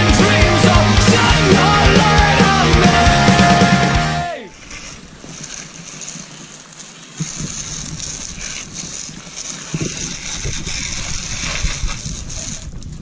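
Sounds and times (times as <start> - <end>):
hose spraying water: 4.5 - 12.8
wind buffeting microphone: 7.3 - 13.0.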